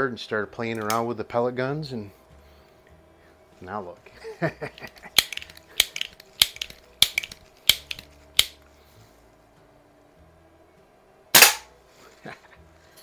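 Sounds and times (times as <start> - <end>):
air pistol pump clicks: 5.2 - 8.6.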